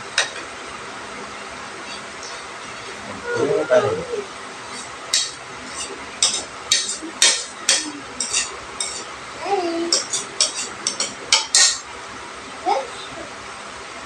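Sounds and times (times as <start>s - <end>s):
brief voiced sound: 3.2s - 4.2s
cutlery clinking on plates: 4.7s - 9.1s, 9.9s - 11.8s.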